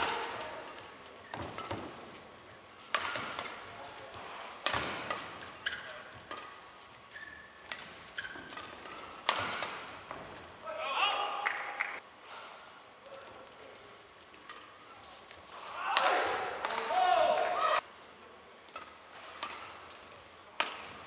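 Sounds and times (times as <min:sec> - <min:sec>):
rackets striking shuttlecock: 0:00.0 - 0:10.2, 0:18.7 - 0:21.0
shoes squeaking: 0:00.0 - 0:10.6.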